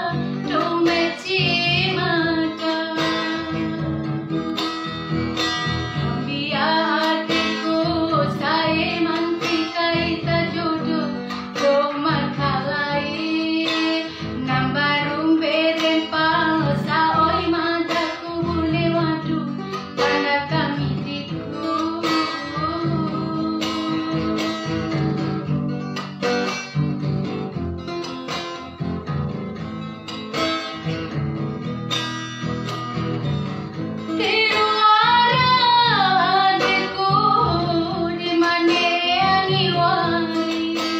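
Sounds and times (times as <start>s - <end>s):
woman singing: 0.0s - 4.4s, 5.9s - 25.5s, 34.1s - 40.9s
strummed acoustic guitar: 0.0s - 40.9s.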